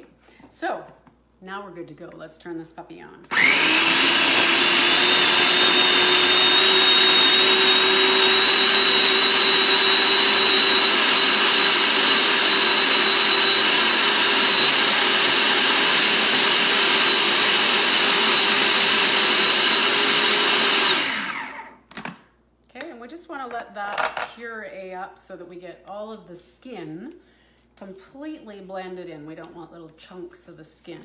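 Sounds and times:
food processor motor whining: 3.3 - 21.8.

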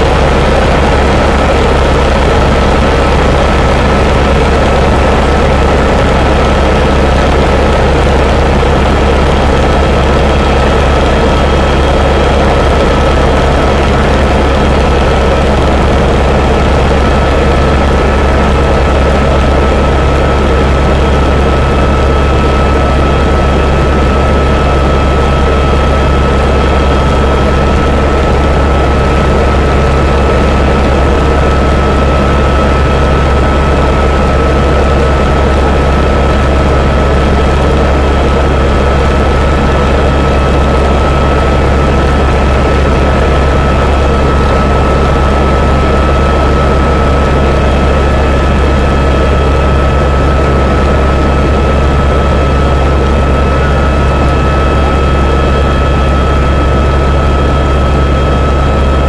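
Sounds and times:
helicopter rotor and turbine noise: 0.0 - 59.0.

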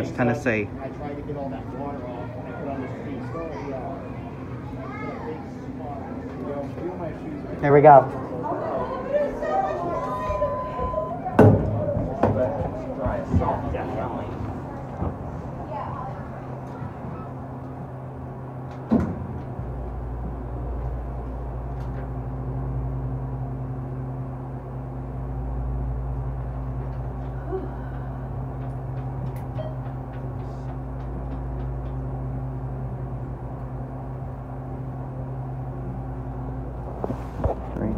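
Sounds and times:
elevator hum and low rumble: 0.0 - 37.9
elevator clunk: 9.6 - 22.8, 28.5 - 33.0.

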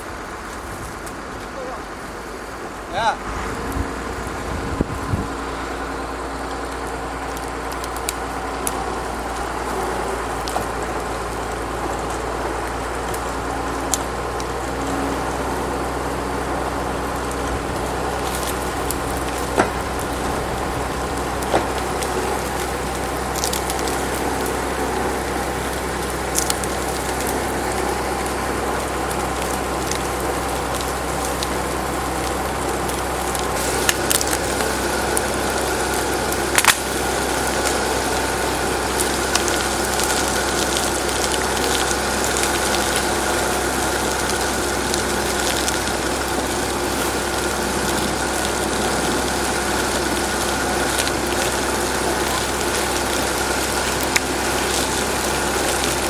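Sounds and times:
engine idling: 0.0 - 56.0
sharp clicks and cracks: 10.4 - 15.0, 17.2 - 56.0.

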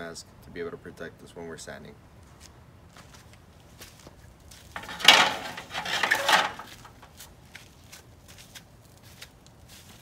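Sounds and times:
rustling handling noise: 3.9 - 7.9.

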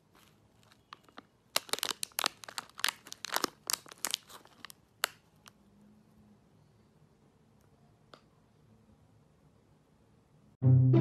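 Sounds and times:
plastic wrapper crinkling: 0.0 - 5.6.

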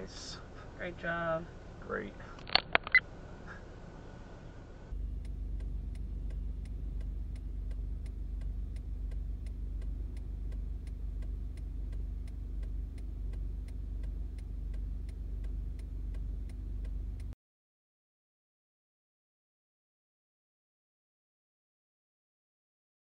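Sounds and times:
faint hum: 0.0 - 17.4
road and engine rumble: 0.0 - 17.4
even ticking: 4.9 - 17.4.

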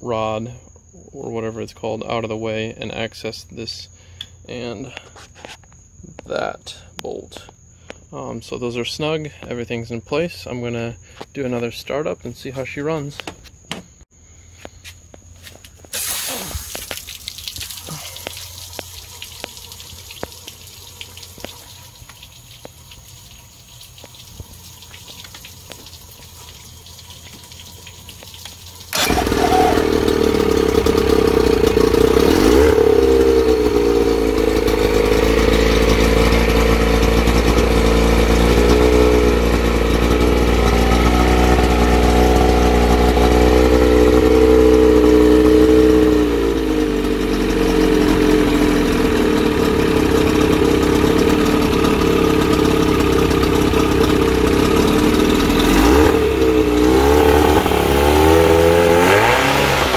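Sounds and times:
water hissing through hose: 15.8 - 32.6
outboard motor running: 17.7 - 59.9.

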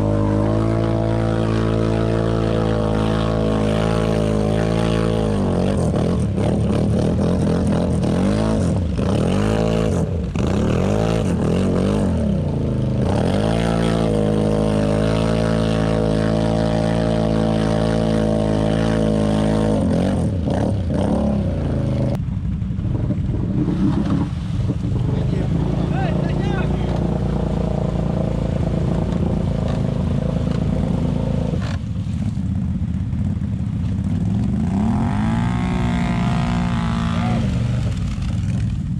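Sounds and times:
quad engine revving: 0.0 - 22.2, 34.2 - 38.8.

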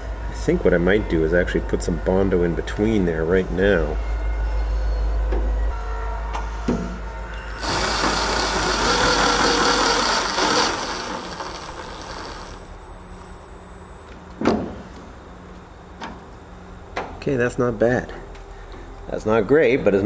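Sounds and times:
thin high whine: 7.3 - 14.2.

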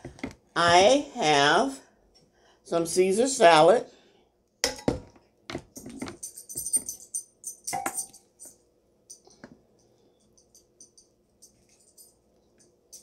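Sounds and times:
metal tongs clicking and clattering: 5.7 - 9.2, 10.4 - 12.2.

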